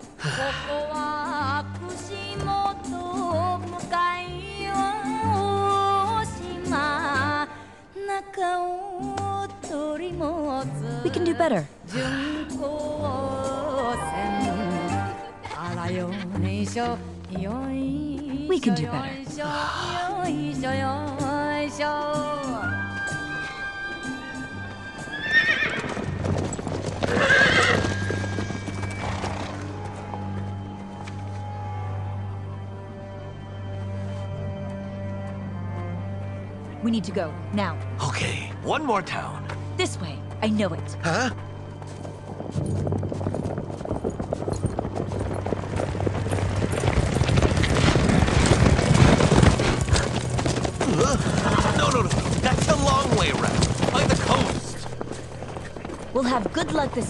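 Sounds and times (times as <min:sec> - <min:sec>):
hooves clip-clopping: 0:12.2 - 0:32.4, 0:41.4 - 0:57.0
background music with drone: 0:18.4 - 0:48.0
horse neighing: 0:22.2 - 0:29.9, 0:49.8 - 0:54.5.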